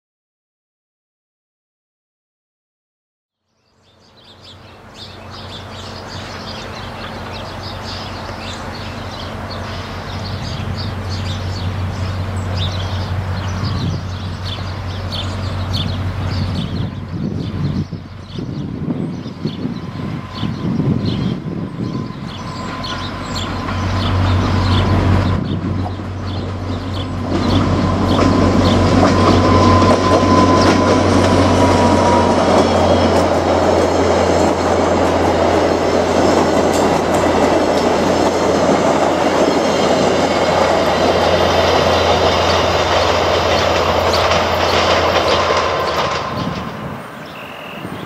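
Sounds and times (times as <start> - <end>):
diesel locomotive engine hum: 3.8 - 48.0
train wheels clicking on rails: 4.6 - 16.8, 21.8 - 48.0.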